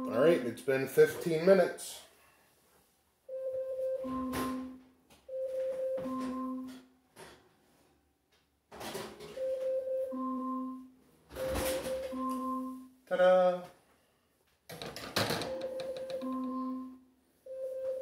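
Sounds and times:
electronic timer chime: 15.5s - 18.0s.

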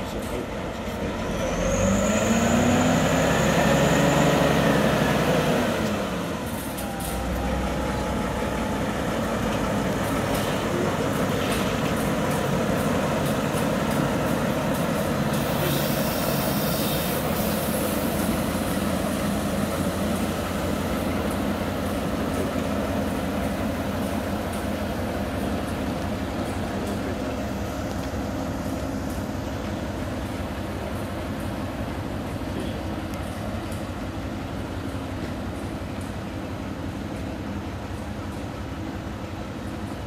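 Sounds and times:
locomotive diesel engine running: 0.0s - 40.0s
wheels rumbling on rails: 0.0s - 40.0s
brief hiss: 15.3s - 18.7s.

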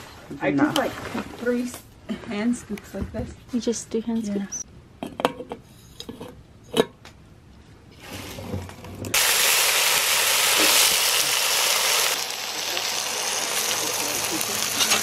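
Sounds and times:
potatoes sizzling in a skillet: 9.2s - 15.0s.

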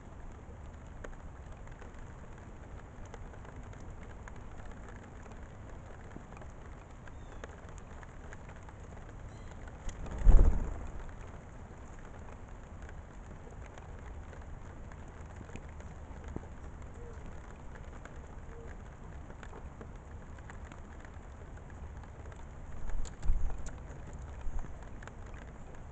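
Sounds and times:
bird wingbeats fluttering: 7.1s - 12.4s.

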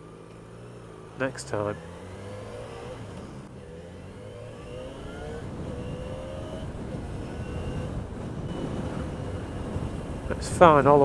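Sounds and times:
motorcycle engine accelerating: 0.0s - 11.0s
wind rumble on microphone: 4.5s - 11.0s.

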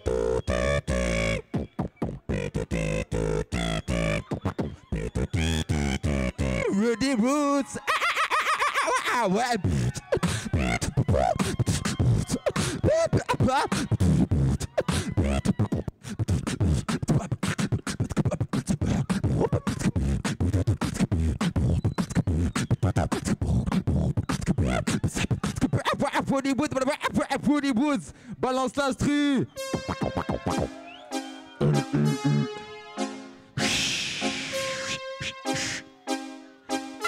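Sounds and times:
person beatboxing: 0.0s - 6.7s, 9.6s - 27.5s, 29.7s - 30.7s, 31.6s - 32.6s, 33.6s - 35.9s.

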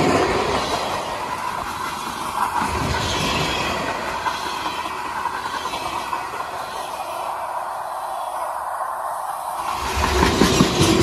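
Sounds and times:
train wheels clattering: 0.0s - 8.6s, 9.4s - 11.0s.

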